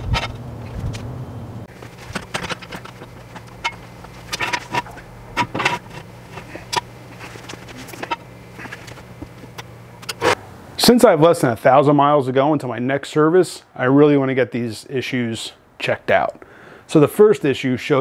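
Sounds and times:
steady low hum: 0:00.0 - 0:14.0
steel jack stands clanking: 0:01.7 - 0:10.4.

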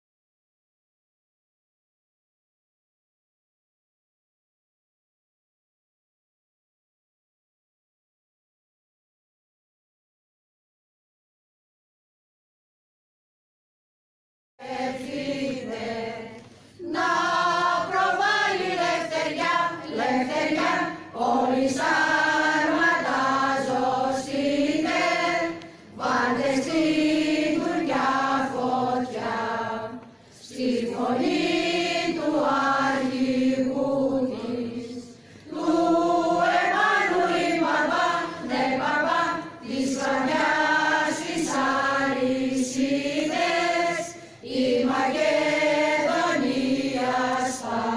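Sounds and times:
choir singing: 0:14.6 - 0:47.9.

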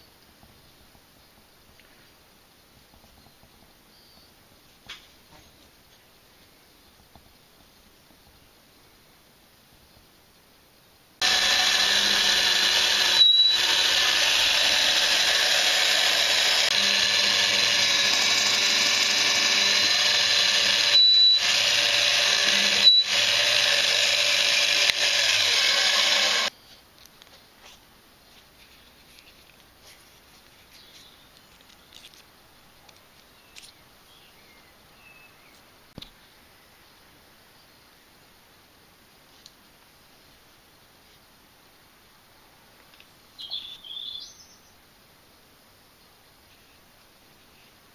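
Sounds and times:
drill press whining: 0:11.2 - 0:26.5.

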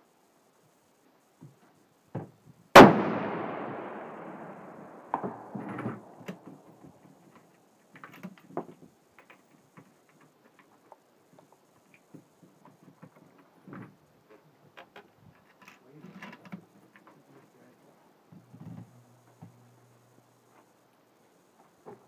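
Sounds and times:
rifle shot with long echo: 0:02.8 - 0:06.7
small clicks and knocks: 0:05.1 - 0:17.2.

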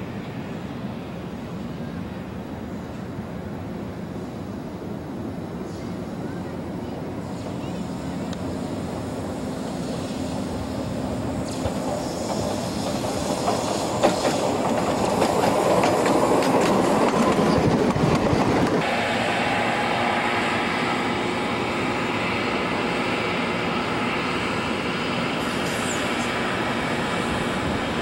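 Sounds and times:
rail car running on rails: 0:00.0 - 0:28.0
wheels clicking over rail joints: 0:11.5 - 0:18.8.

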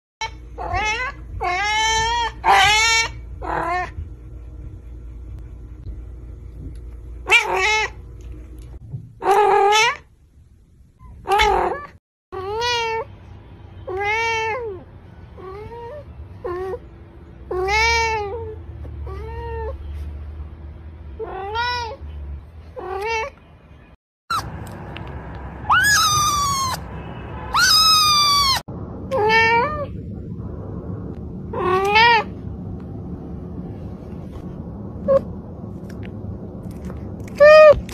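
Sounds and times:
high-pitched kitten meows: 0:00.2 - 0:03.8, 0:13.8 - 0:14.8, 0:25.7 - 0:26.8, 0:27.5 - 0:29.9, 0:31.5 - 0:32.3, 0:37.3 - 0:37.9
cats meowing: 0:00.2 - 0:04.0, 0:07.3 - 0:08.0, 0:13.9 - 0:14.8, 0:17.5 - 0:19.8, 0:21.2 - 0:22.0, 0:25.7 - 0:26.8, 0:27.5 - 0:29.9, 0:31.5 - 0:32.3, 0:37.3 - 0:37.9.

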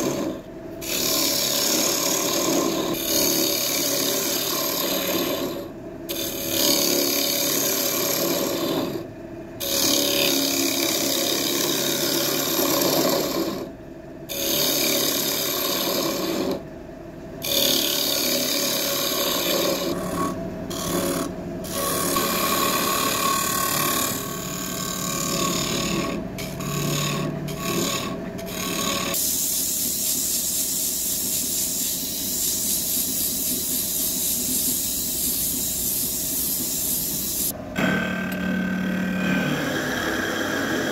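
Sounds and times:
power tool cutting wood: 0:17.4 - 0:29.2, 0:37.0 - 0:40.9
thin hissing sound: 0:29.2 - 0:37.5.

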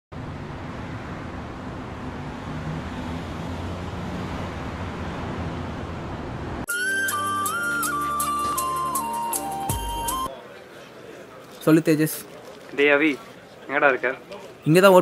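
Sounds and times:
street traffic rumble: 0:00.1 - 0:15.0
flute music: 0:06.7 - 0:10.3.

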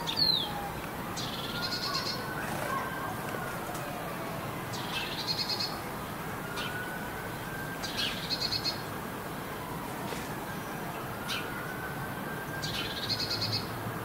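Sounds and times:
songbird trilling: 0:00.0 - 0:00.6, 0:01.2 - 0:02.3.

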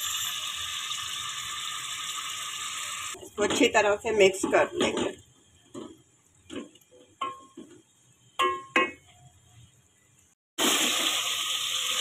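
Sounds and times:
oil sizzling: 0:00.0 - 0:07.5, 0:10.6 - 0:12.0.

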